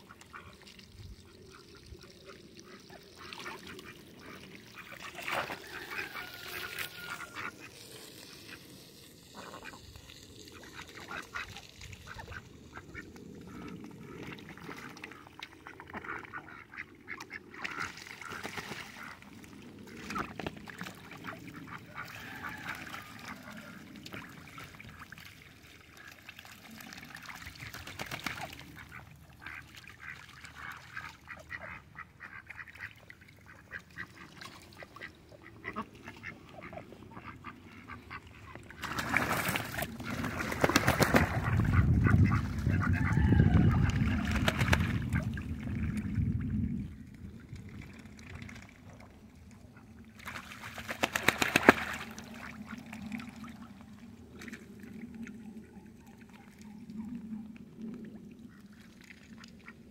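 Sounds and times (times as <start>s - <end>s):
ducks quacking: 1.5s - 7.9s, 21.2s - 24.6s, 28.8s - 45.4s.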